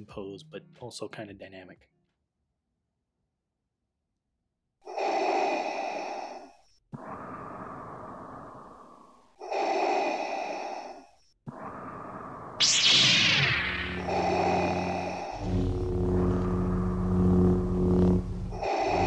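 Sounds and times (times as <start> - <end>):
mechanical respirator breathing: 4.9 - 13.0, 13.6 - 19.0
loud whoosh: 12.6 - 19.0.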